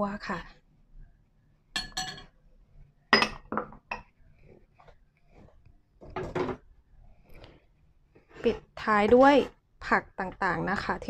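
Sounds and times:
metal spoon clinking ceramic bowls: 1.8 - 2.4.

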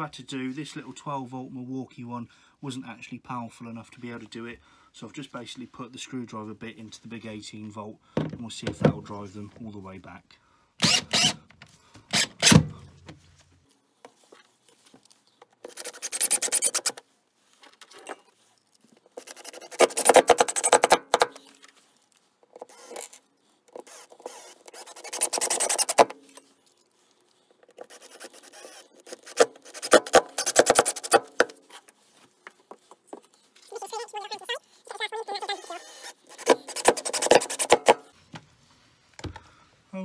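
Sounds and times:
cordless drill driving screw: 10.8 - 11.4, 12.1 - 12.6, 15.6 - 17.0, 19.2 - 21.4, 22.5 - 26.4, 27.7 - 31.6, 35.4 - 38.0
brush scratching vinyl floor: 15.6 - 17.0, 24.9 - 26.1, 27.8 - 32.1, 33.7 - 38.0.

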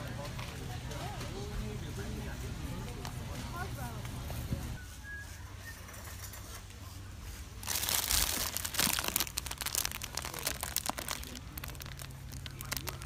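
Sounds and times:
plastic packaging crinkling: 7.6 - 13.0.

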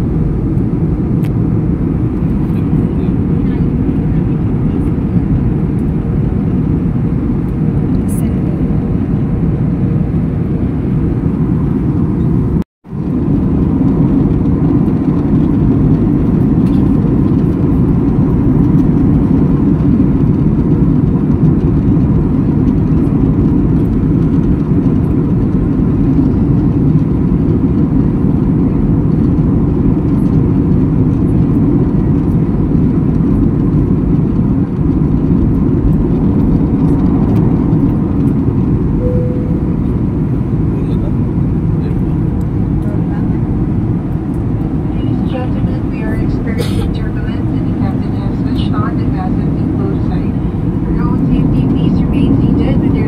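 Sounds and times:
jet cabin engine drone: 0.0 - 53.0.

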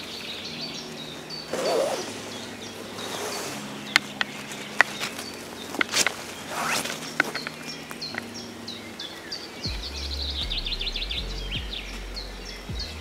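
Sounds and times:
footsteps on forest path: 0.0 - 9.9
small birds chirping: 0.0 - 13.0
low rumble: 9.7 - 13.0.

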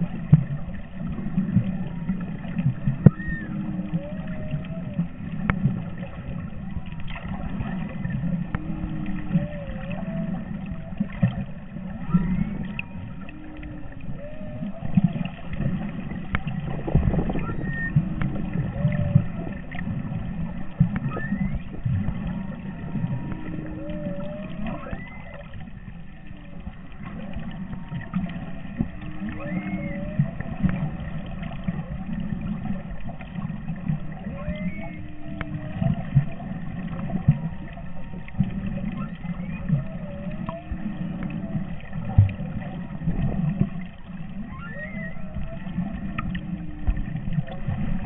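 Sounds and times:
constant low rumbling: 0.0 - 48.0
whale song underwater: 0.0 - 48.0.

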